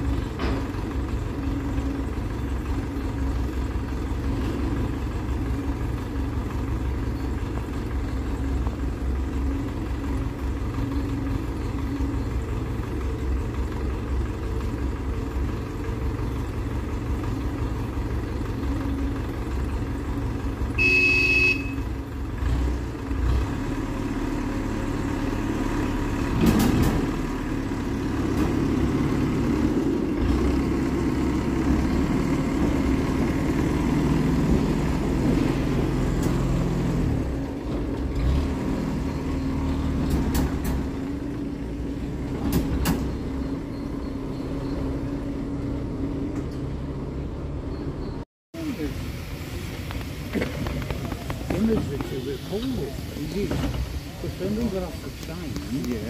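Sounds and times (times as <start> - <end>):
railcar engine running: 0.0 - 56.0
high horn toot: 20.8 - 21.9.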